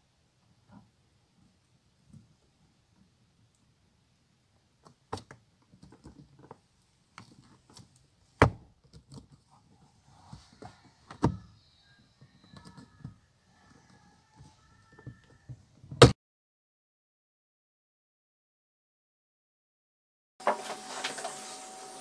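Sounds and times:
faint squeaks: 0:09.4 - 0:15.7.

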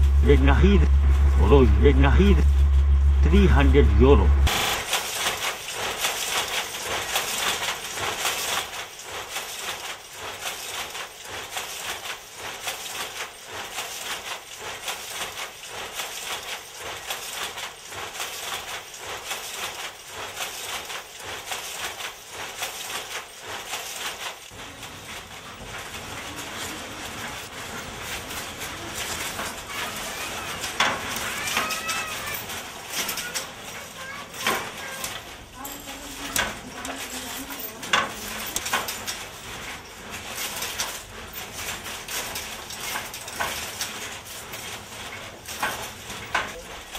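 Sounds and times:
wooden handloom clattering: 0:04.5 - 0:46.9
loom squeaks: 0:18.2 - 0:46.9.

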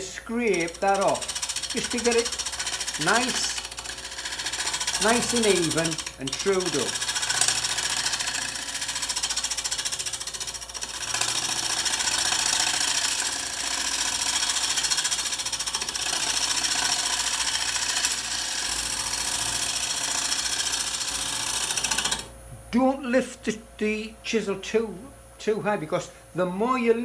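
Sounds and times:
wood lathe running: 0:00.0 - 0:22.3
tool scraping spinning wood: 0:00.0 - 0:22.4.

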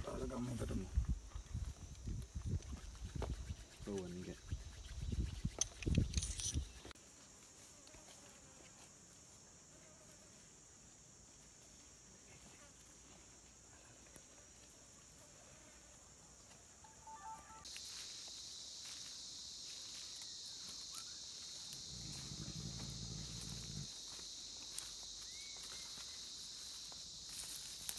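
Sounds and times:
insect chorus drone: 0:00.0 - 0:27.9
footsteps through undergrowth: 0:17.3 - 0:27.9.

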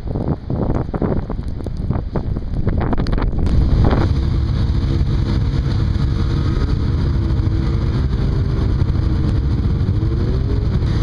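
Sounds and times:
wind rumble on microphone: 0:00.0 - 0:11.0
heavy equipment engine running: 0:03.1 - 0:11.0.

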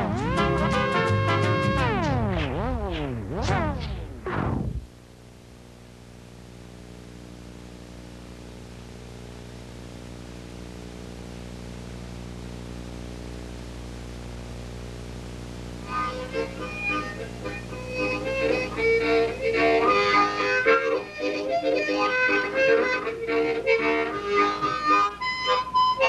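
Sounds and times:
sliding wavering sweep: 0:01.7 - 0:04.9.

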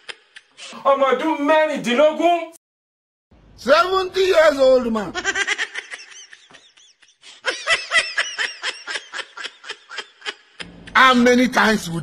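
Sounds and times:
high-pitched comedic laughter: 0:05.1 - 0:11.0.

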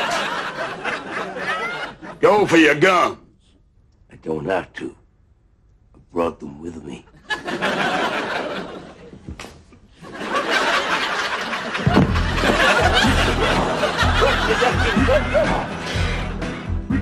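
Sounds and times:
audience laughing: 0:00.0 - 0:02.2, 0:07.1 - 0:16.4
music: 0:11.8 - 0:17.0.

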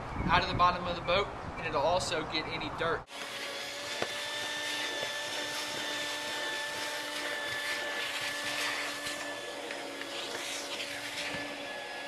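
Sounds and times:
shop vacuum running: 0:03.1 - 0:12.0.

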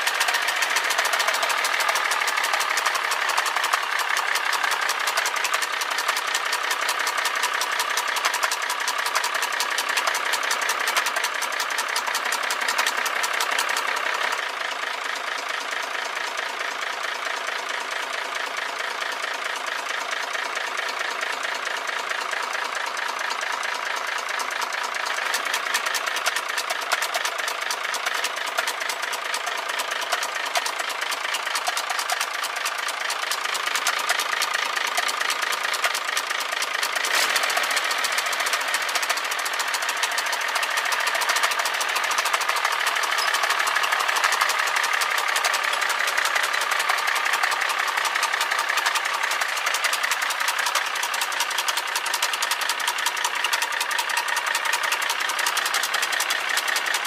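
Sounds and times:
diesel truck engine idling: 0:00.0 - 0:57.0
rapid even engine knocking: 0:00.0 - 0:57.0.

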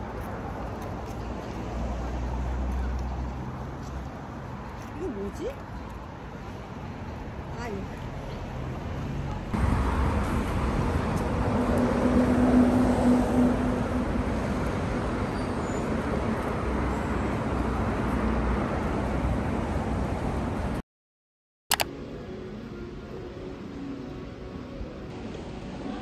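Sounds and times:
cars passing: 0:00.0 - 0:20.8
vehicle engine hum: 0:00.0 - 0:20.8.

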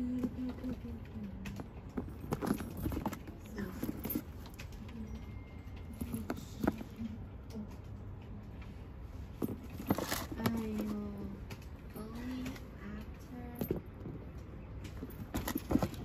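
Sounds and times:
sneakers handled in shoebox: 0:01.9 - 0:04.6, 0:09.3 - 0:11.2, 0:15.0 - 0:16.0.

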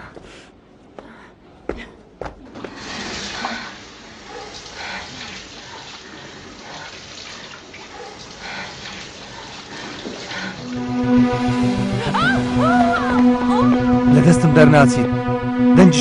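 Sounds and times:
water running from a tap: 0:02.8 - 0:13.0.

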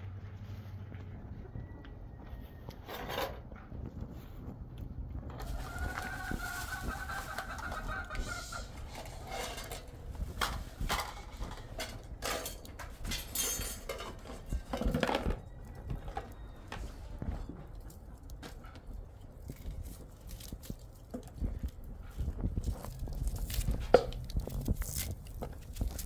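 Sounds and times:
chicken calling: 0:05.4 - 0:09.6.

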